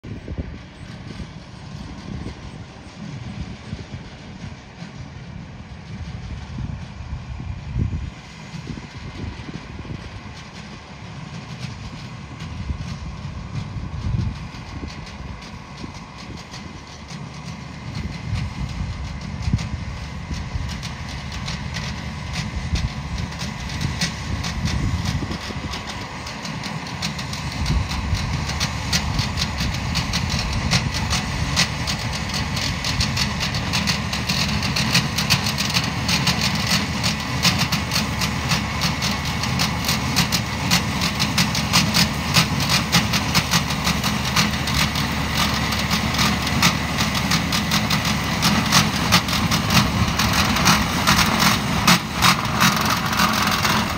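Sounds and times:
tractor engine running: 0.0 - 53.9
mower cutting grass clicks: 9.4 - 53.9.

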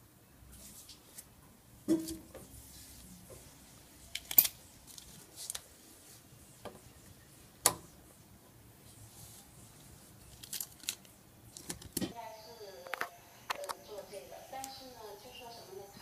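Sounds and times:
low room noise: 0.0 - 16.0
small parts clicking and knocking: 4.1 - 5.6.

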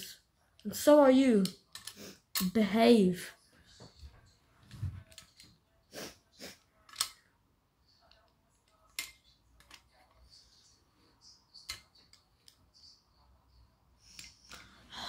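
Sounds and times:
plastic toy parts clicking: 1.4 - 2.5, 6.8 - 7.2, 8.1 - 10.0.

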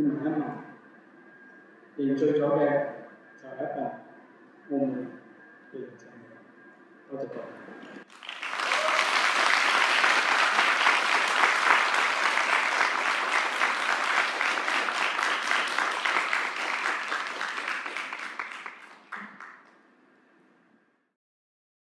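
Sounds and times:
audience applauding: 8.0 - 19.8.

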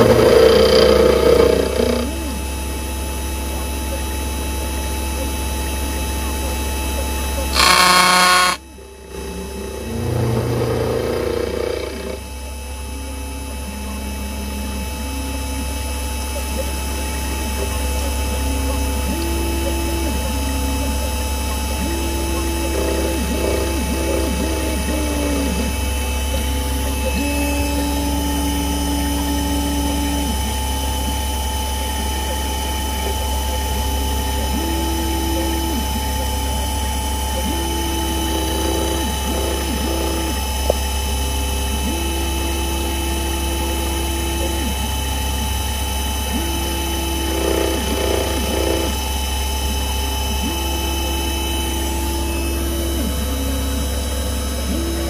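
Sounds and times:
axis-drive tones: 0.0 - 2.6, 7.5 - 12.3, 18.8 - 45.4, 46.2 - 55.0
milling machine cutting metal: 0.0 - 12.7, 14.4 - 55.0
motor hum and spindle whine: 0.0 - 55.0.

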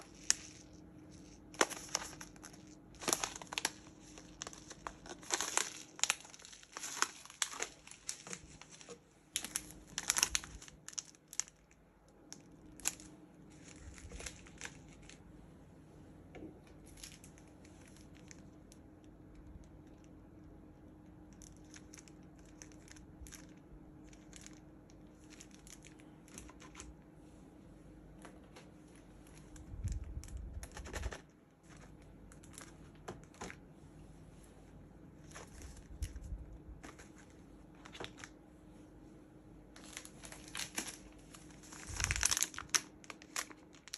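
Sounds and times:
packaging crinkling and tearing: 0.0 - 15.2, 16.8 - 18.7, 21.3 - 26.9, 29.2 - 33.7, 35.2 - 38.4, 39.8 - 43.9.

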